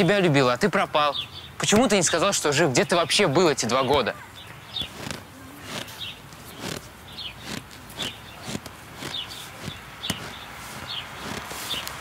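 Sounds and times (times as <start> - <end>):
footsteps crunching in snow: 4.5 - 12.0.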